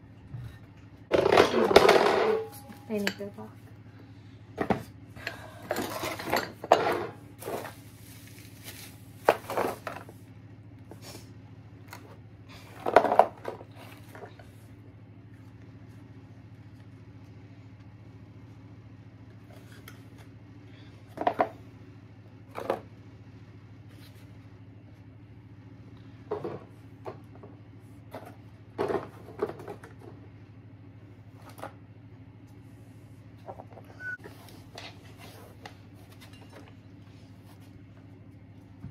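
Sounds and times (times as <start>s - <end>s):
faint steady hum: 0.0s - 38.9s
household items clattering: 1.1s - 3.4s, 4.6s - 10.1s.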